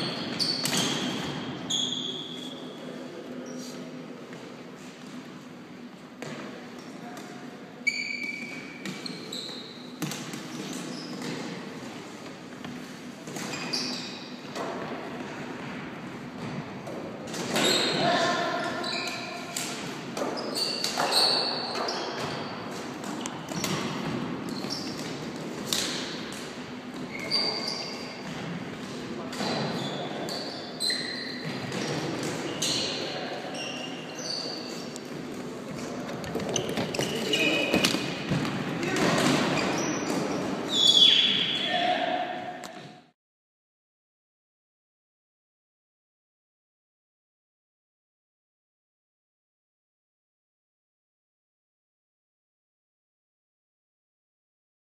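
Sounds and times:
sneakers squeaking on floor: 0.0 - 2.8, 6.2 - 11.7, 13.3 - 14.9, 17.4 - 43.0.

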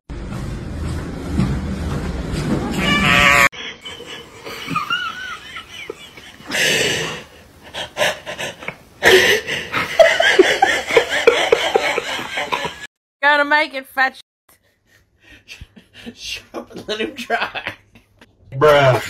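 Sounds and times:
person laughing wheezily: 3.6 - 12.9.

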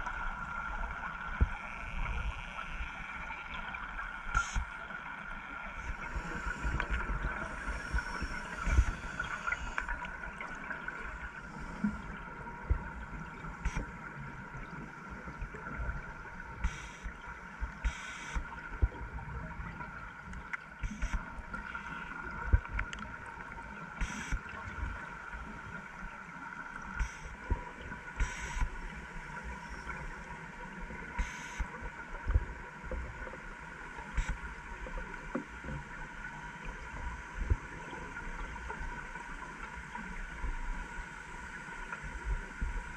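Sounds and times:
steady hum: 5.4 - 18.9
low bubble rumble and thumps: 15.4 - 20.1.

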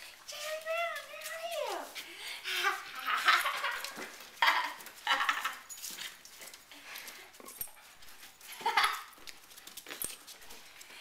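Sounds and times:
dogs scuffling: 0.0 - 11.0.

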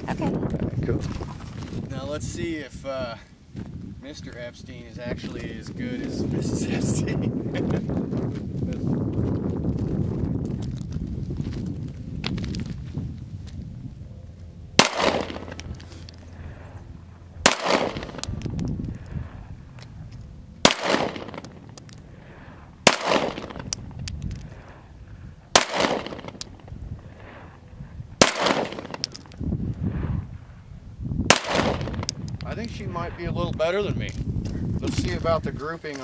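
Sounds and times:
pistol shots with echo: 14.8 - 15.6, 17.4 - 18.4, 20.6 - 21.6, 22.8 - 23.8, 25.6 - 26.5, 28.2 - 29.2, 31.3 - 32.0.

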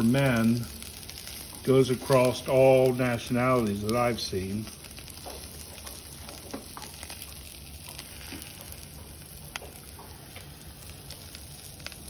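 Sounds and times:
food sizzling on a grill: 0.0 - 12.0.

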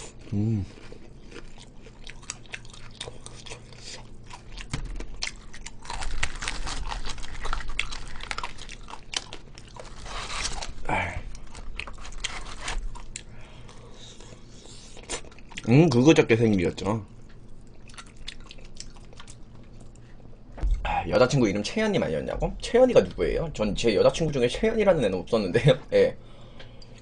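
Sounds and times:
chewing crispy fried chicken: 0.0 - 20.2.

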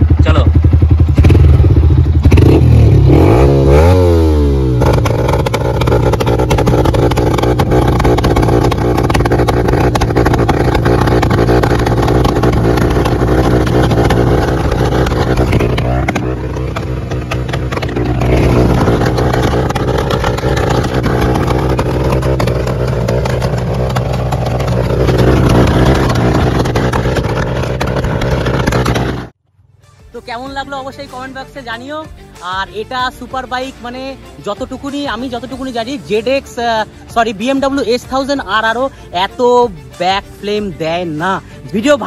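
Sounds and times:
motorcycle engine revving: 0.0 - 29.4
exhaust backfire pops: 1.0 - 29.4.

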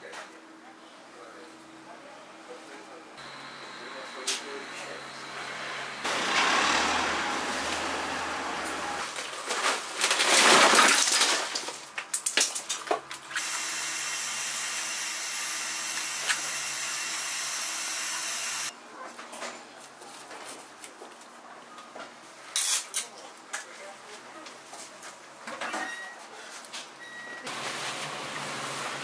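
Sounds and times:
loud rushing noise: 5.5 - 9.1.

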